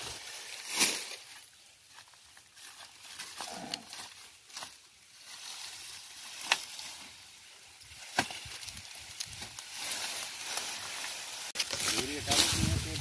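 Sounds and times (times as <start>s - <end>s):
dry leaves rustling: 0.0s - 13.0s
sugarcane stalks cracking: 0.0s - 13.0s.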